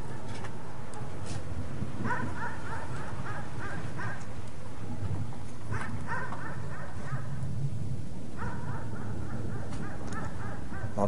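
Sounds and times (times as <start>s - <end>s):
dog barking in high yelps: 2.0s - 4.2s, 5.7s - 7.4s, 8.4s - 11.0s.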